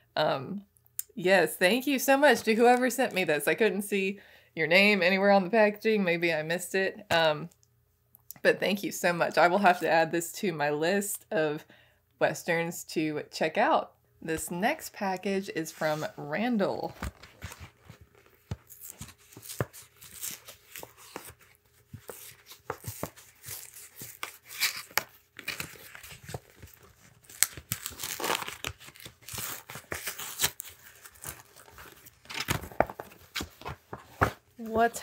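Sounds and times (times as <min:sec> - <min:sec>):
paper envelope tearing: 0:17.0 - 0:33.7.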